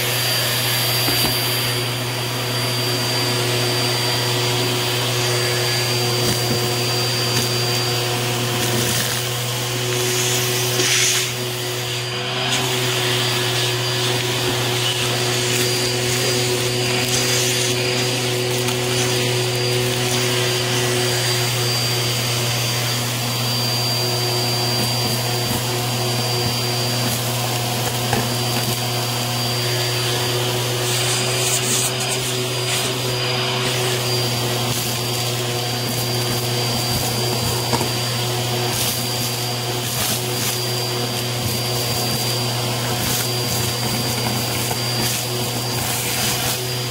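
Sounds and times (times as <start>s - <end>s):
vacuum cleaner motor hum: 0.0s - 46.9s
debris rattling up vacuum hose: 24.0s - 46.9s.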